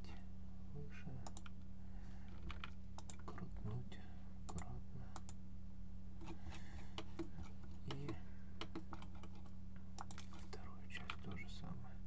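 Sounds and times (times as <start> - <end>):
low electrical hum: 0.0 - 12.0
mouse and keyboard clicks: 7.0 - 10.4, 11.0 - 11.3.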